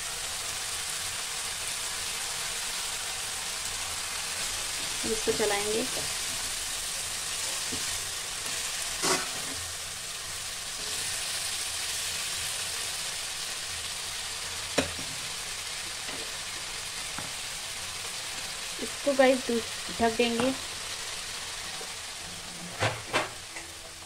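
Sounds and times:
cabbage sizzling in hot oil: 0.0s - 24.0s.

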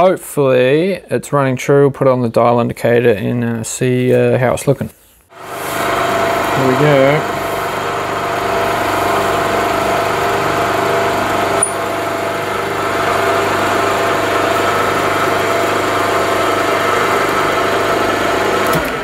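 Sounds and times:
milling machine running: 5.3s - 19.0s.

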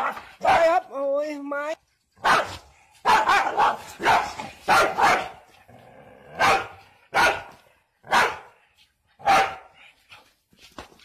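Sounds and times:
dog barking: 0.0s - 0.7s, 2.2s - 5.4s, 6.4s - 8.6s, 9.2s - 9.8s.

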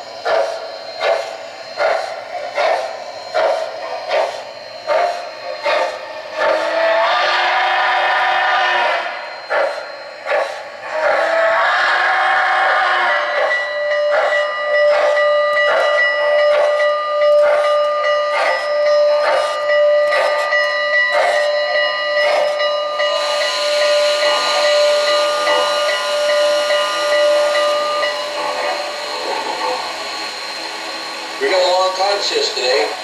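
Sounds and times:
steam locomotive chuffing: 0.0s - 33.0s
long steam whistle: 4.9s - 14.3s, 23.0s - 32.8s.

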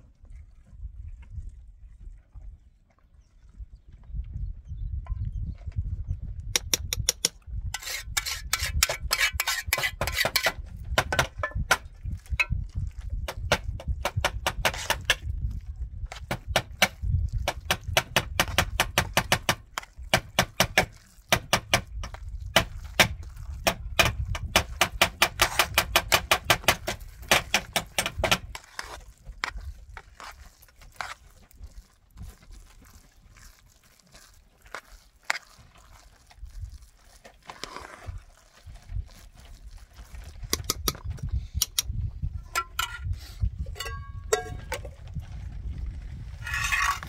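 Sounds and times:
metal spoon scraping cooking pot: 6.9s - 11.7s, 42.4s - 45.0s, 46.4s - 47.0s.

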